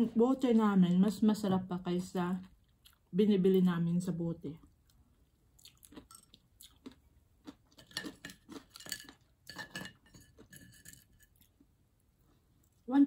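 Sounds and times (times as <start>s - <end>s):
spoon clinking on ceramic plates: 7.8s - 11.4s.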